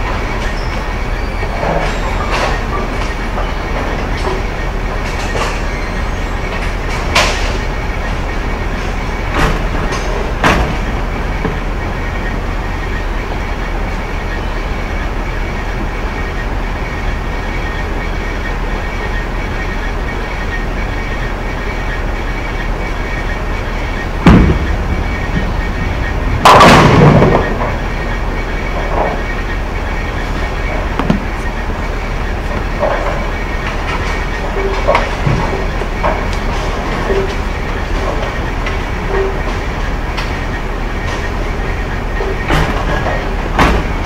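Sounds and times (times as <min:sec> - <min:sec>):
bowling alley rumble: 0:00.0 - 0:44.0
bowling pins crashing: 0:23.0 - 0:44.0.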